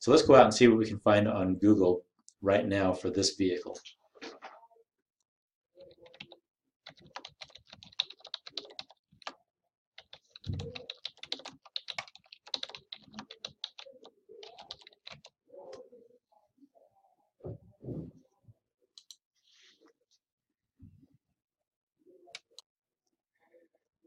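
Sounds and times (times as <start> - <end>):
computer keyboard typing: 5.8 - 9.4, 10.0 - 15.8.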